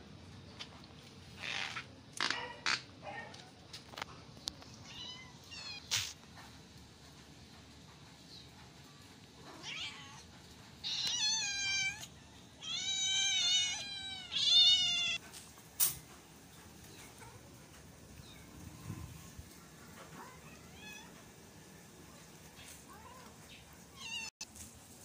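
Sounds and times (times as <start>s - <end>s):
cat meowing: 4.8s - 5.9s, 9.5s - 15.2s, 24.0s - 24.3s.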